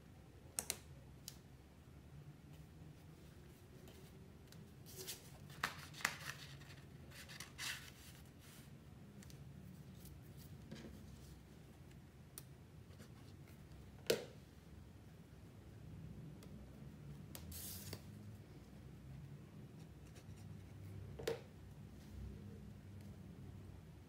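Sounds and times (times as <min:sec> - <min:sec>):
paper rustling: 0:04.8 - 0:08.7.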